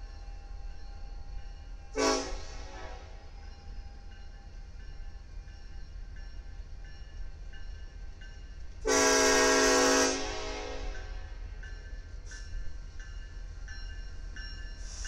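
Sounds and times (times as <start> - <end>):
train rumble: 0.0 - 15.0
locomotive air horn blast: 2.0 - 3.2, 8.8 - 11.3.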